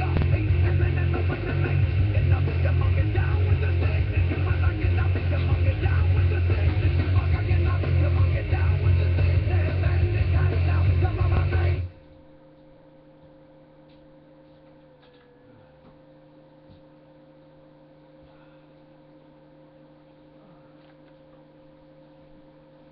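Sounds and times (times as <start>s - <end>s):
loud music: 0.0s - 11.9s
faint electrical hum: 0.0s - 22.9s.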